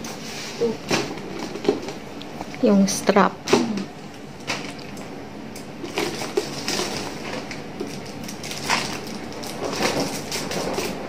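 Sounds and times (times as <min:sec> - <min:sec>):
plastic wrap crinkling: 0:05.8 - 0:11.0.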